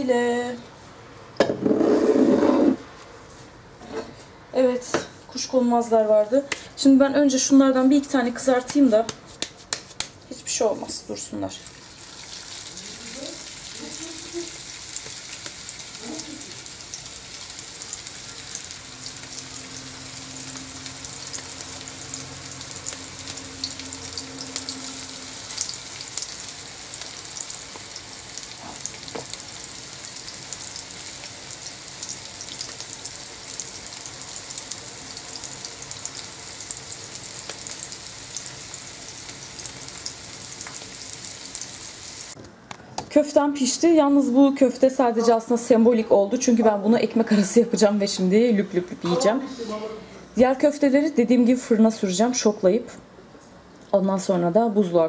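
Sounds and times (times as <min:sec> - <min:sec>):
meat sizzling in oil: 0:11.6 - 0:42.4.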